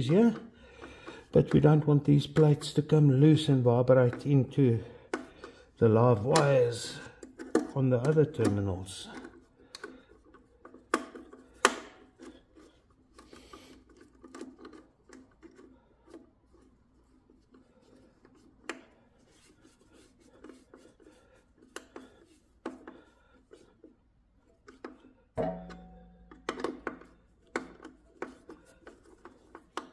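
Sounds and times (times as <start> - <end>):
metallic clicks and scraping: 6.2 - 16.8.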